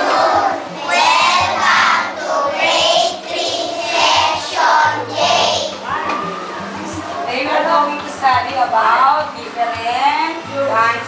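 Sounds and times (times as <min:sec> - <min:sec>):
children singing in unison: 0:00.0 - 0:06.5.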